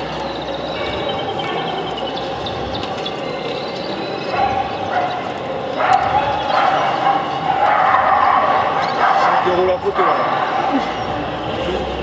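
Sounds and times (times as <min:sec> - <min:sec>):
cage birds twittering: 0:00.0 - 0:12.0
crowd chatter: 0:00.0 - 0:12.0
dog barking: 0:04.3 - 0:11.0.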